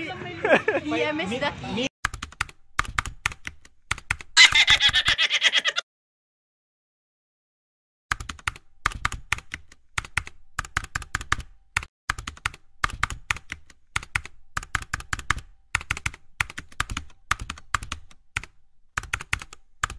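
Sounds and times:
computer keyboard typing: 2.0 - 4.4, 8.1 - 19.9.

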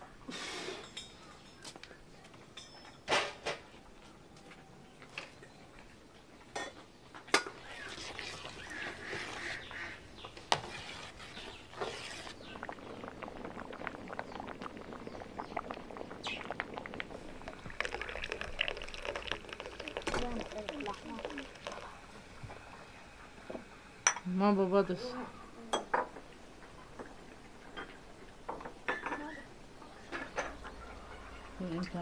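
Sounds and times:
hiss: 0.3 - 0.9
dishes clinking and knocking: 2.4 - 3.7, 6.5 - 7.6, 23.5 - 24.3, 25.7 - 26.3, 26.9 - 29.4, 30.1 - 30.8.

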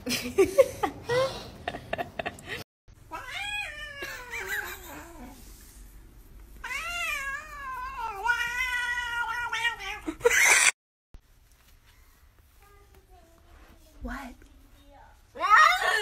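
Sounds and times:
cat yowling: 3.1 - 5.0, 6.6 - 10.2.

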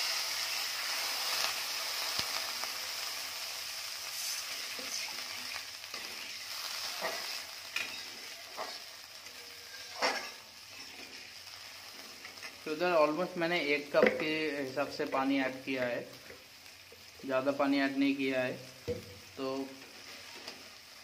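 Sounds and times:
masala and oil sizzling in a pan: 0.0 - 21.0
metal spatula scraping a pan: 4.2 - 12.7.

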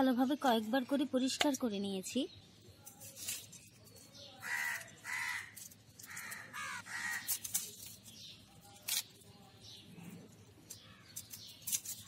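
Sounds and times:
garlic skin crackling: 2.7 - 12.0
crow cawing: 4.4 - 7.3.

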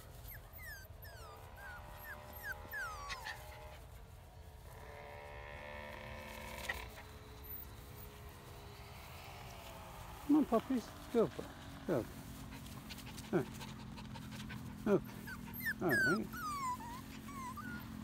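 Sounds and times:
puppies whining: 0.0 - 3.8, 6.4 - 8.3, 13.0 - 18.0
puppies yelping: 0.0 - 3.9, 6.2 - 8.2, 12.8 - 18.0.

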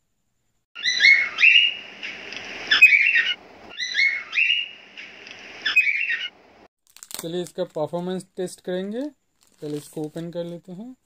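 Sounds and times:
high whistled chirps: 0.8 - 6.4
soft rushing noise: 1.3 - 3.7.

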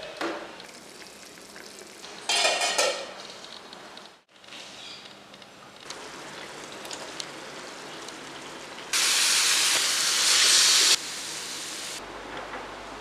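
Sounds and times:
curry sizzling in a pan: 5.9 - 12.0
loud even hiss: 9.0 - 12.0.

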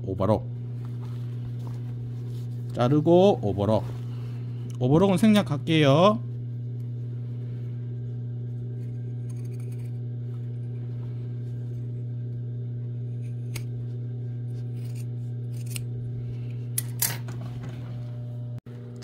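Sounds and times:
low electric hum: 0.0 - 19.0
shears cutting fabric: 14.4 - 16.6.

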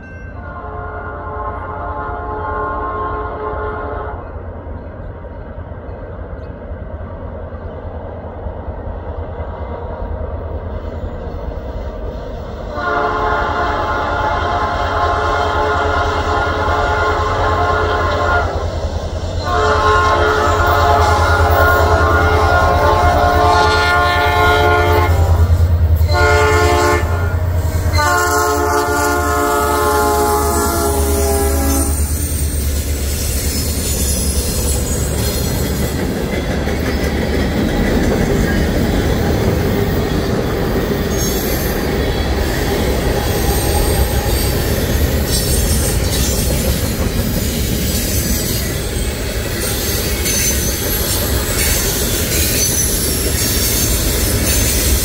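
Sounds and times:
locomotive horn blasts: 0.4 - 4.4, 12.7 - 18.7, 19.4 - 32.2
train cars clickety-clack: 2.5 - 55.0
wheel squeal: 31.9 - 35.9, 43.2 - 55.0.

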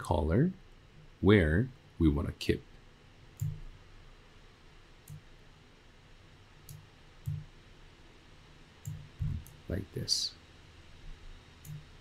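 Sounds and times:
faint room hiss: 0.0 - 12.0
computer mouse clicking: 3.4 - 3.7, 5.0 - 5.3, 6.6 - 7.5, 8.8 - 9.6, 11.6 - 11.9.

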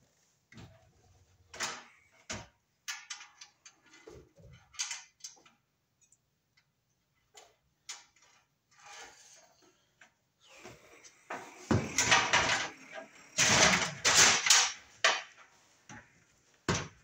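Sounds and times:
hand tools clicking and tapping: 11.3 - 16.0.

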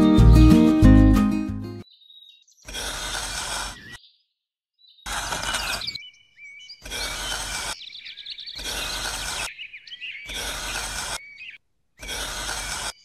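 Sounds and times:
small birds chirping: 1.8 - 13.0
metal knife scraping sand: 2.7 - 4.0, 5.1 - 6.0, 6.8 - 7.9, 8.6 - 9.6, 10.2 - 11.4, 12.0 - 13.0.

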